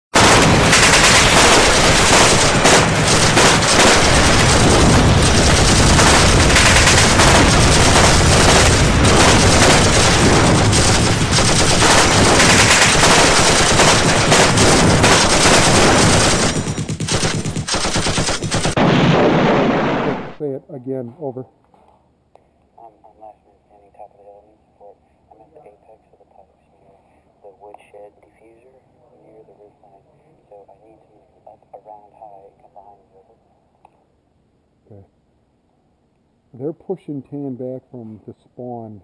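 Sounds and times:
automatic gunfire: 0.2 - 20.4.

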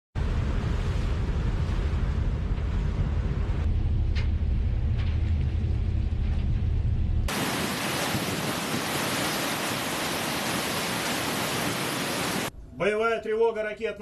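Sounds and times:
low rumble: 0.2 - 12.8
seawater rushing over bow: 7.3 - 12.5.

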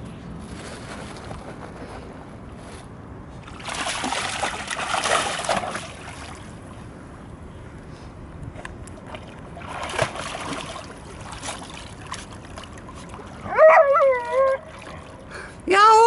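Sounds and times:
dogs splashing through water: 3.4 - 6.6, 8.9 - 16.0.

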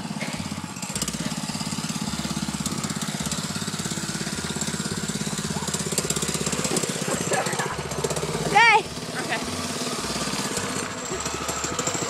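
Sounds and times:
mini bike engine running: 0.0 - 12.0.

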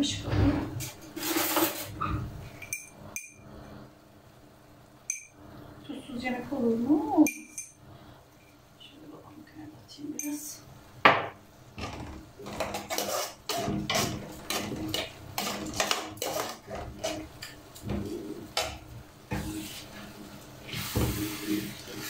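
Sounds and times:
wooden spoon scraping metal pot: 1.0 - 2.2, 11.8 - 20.1.

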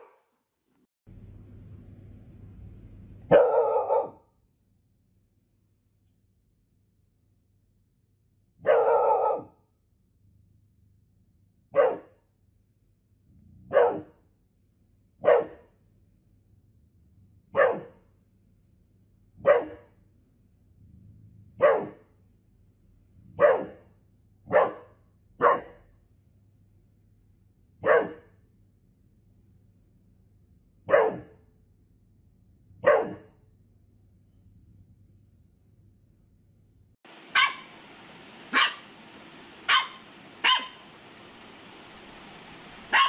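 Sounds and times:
dog barking: 0.0 - 0.3, 3.3 - 4.3, 8.6 - 9.6, 11.7 - 12.2, 13.7 - 14.2, 15.2 - 15.7, 17.5 - 18.0, 19.4 - 20.0, 21.6 - 22.1, 23.3 - 23.9, 24.5 - 25.9, 27.8 - 28.4, 30.9 - 31.4, 32.8 - 33.4, 37.3 - 37.8, 38.5 - 38.9, 39.7 - 40.8.

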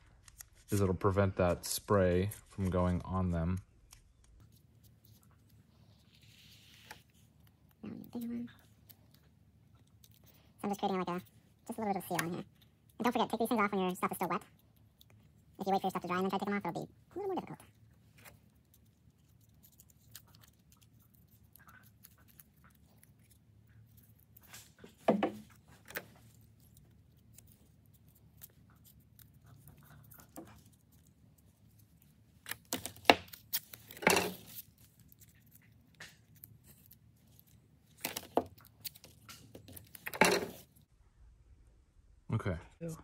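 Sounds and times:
tape rustling: 0.0 - 40.9
tape tearing: 32.4 - 40.7.

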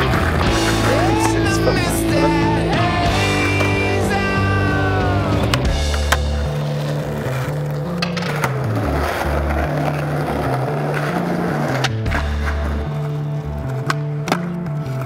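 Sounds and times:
music with stepping bass line: 0.0 - 7.7
skateboard rolling: 0.0 - 15.0
skateboard clacks popping and landing: 5.5 - 13.1.

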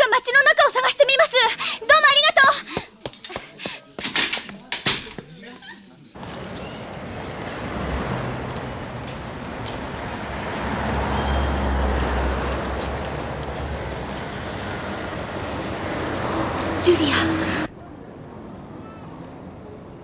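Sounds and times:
street traffic rumble: 6.2 - 20.0.

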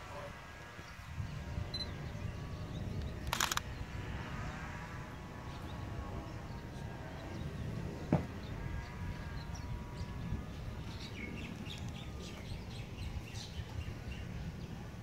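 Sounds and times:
steady low rumble: 0.0 - 15.0
small birds chirping: 5.4 - 15.0.

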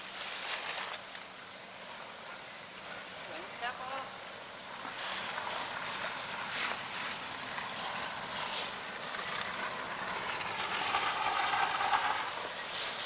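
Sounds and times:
vehicle engine and tyre noise: 4.2 - 13.0.

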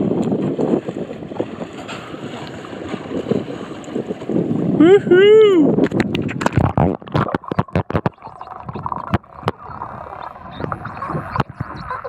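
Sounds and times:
muffled underwater rush: 0.0 - 12.0
underwater clicks and crackles: 5.8 - 12.0.

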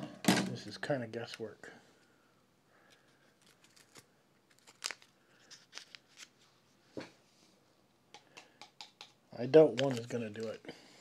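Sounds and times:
paper packet tearing: 3.4 - 6.3.

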